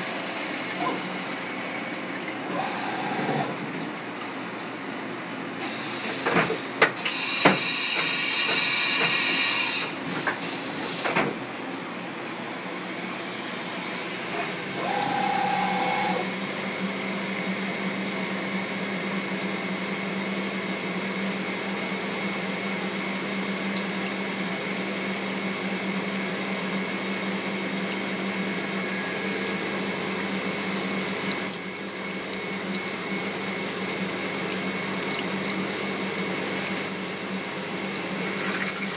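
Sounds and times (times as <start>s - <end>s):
coolant hiss: 5.6s - 11.1s, 28.3s - 38.9s
milling machine cutting metal: 28.6s - 38.9s
high ringing whine: 28.8s - 34.4s, 35.3s - 36.7s, 37.7s - 38.9s.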